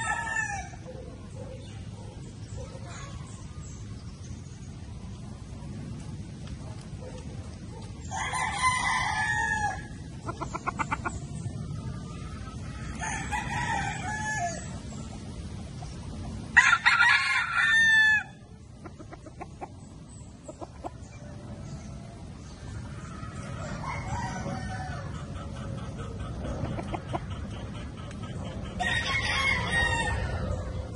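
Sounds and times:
roosters crowing: 0:00.0 - 0:01.7, 0:08.0 - 0:15.1, 0:16.5 - 0:18.7, 0:20.9 - 0:27.5, 0:28.5 - 0:30.9.

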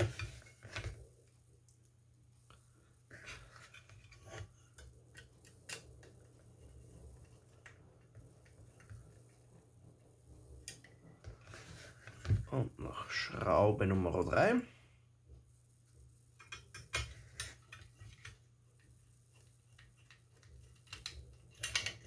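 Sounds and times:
screwdriver clicks and scrapes: 0:16.4 - 0:22.0.

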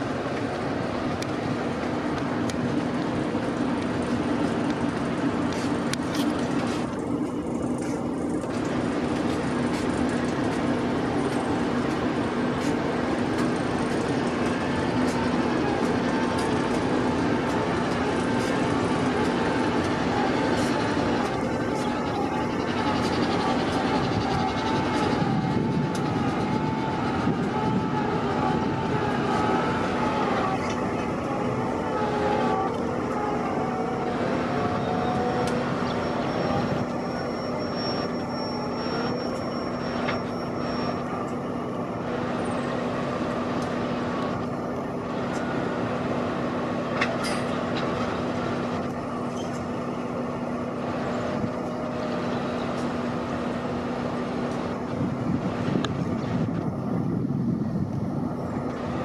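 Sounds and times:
diesel locomotive engines humming: 0:00.0 - 0:59.0.

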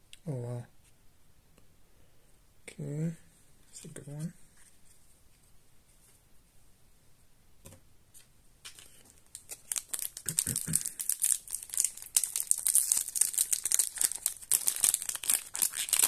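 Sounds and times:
foil wrapper crinkling: 0:08.7 - 0:16.0.

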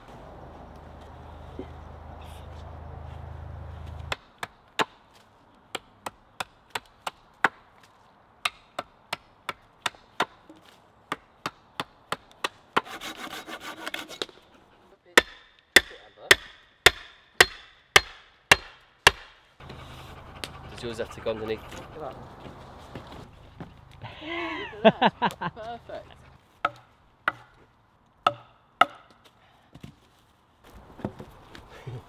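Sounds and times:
hatchet chopping wood: 0:04.1 - 0:07.8, 0:08.4 - 0:14.4, 0:15.2 - 0:19.8, 0:26.6 - 0:27.6, 0:28.2 - 0:29.9
rasping on wood: 0:12.8 - 0:14.4
axe strikes: 0:15.2 - 0:19.4.

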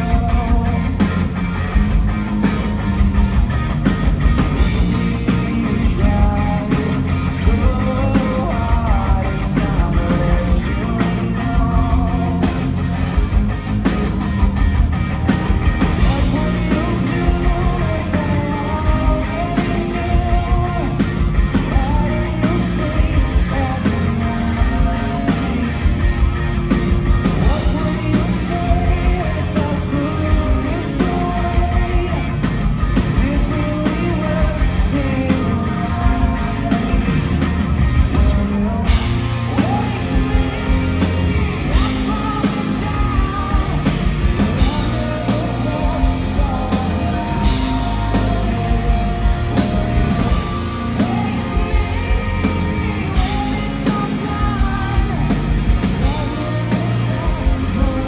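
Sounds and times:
lead vocals singing: 0:00.0 - 0:01.3, 0:04.6 - 0:13.2, 0:15.9 - 0:26.0, 0:27.3 - 0:37.4, 0:38.1 - 0:58.0
live rock band playing: 0:00.0 - 0:58.0.

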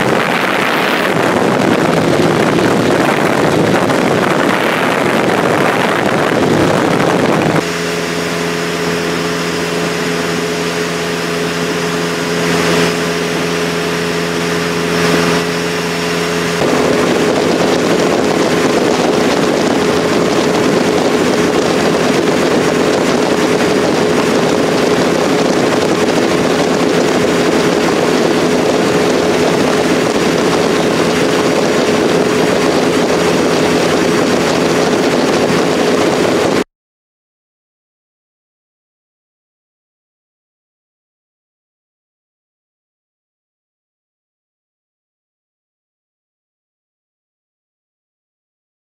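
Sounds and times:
steady engine drone: 0:00.0 - 0:36.6
wind and road noise: 0:00.0 - 0:36.6.

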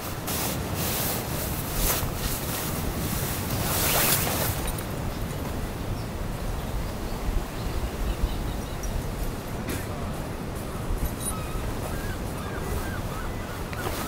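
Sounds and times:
nylon fabric rustling and swishing: 0:00.0 - 0:05.1, 0:13.8 - 0:14.0
wind and surf: 0:00.0 - 0:14.0.

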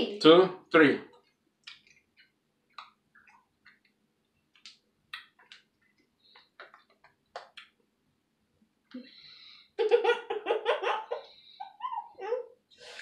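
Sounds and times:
wet mouth clicks and lip smacks: 0:01.2 - 0:07.8.

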